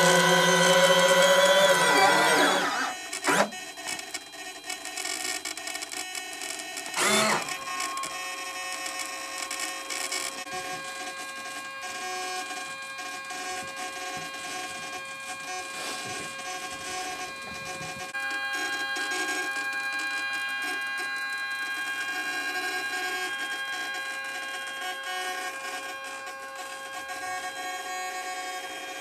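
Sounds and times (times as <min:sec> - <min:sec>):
landing gear whining: 0:00.0 - 0:03.5, 0:06.9 - 0:08.1, 0:12.7 - 0:18.2
short whir: 0:00.0 - 0:03.6, 0:06.9 - 0:08.0.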